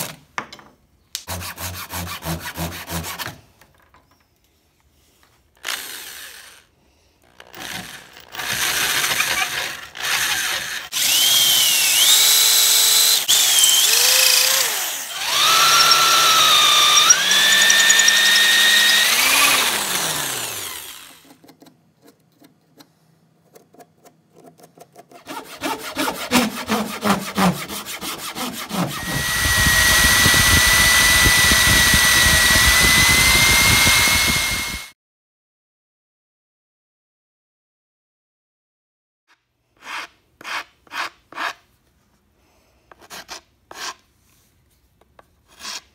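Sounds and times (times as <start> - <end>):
electric drill motor whine: 7.6 - 21.2, 28.8 - 34.9
rattling: 15.5 - 19.6.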